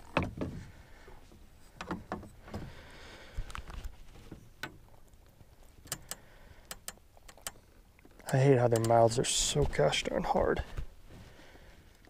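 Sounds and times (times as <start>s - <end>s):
soft rustle: 0.0s - 5.8s, 9.1s - 12.0s.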